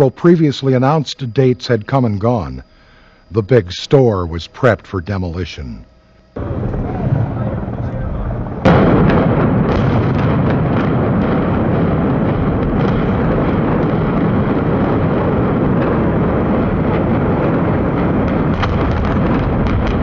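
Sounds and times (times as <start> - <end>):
building collapse rumble: 6.4 - 20.0.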